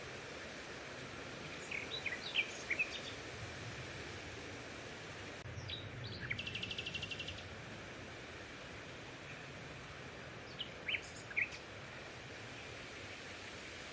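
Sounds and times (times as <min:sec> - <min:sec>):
steady hiss: 0:00.0 - 0:13.9.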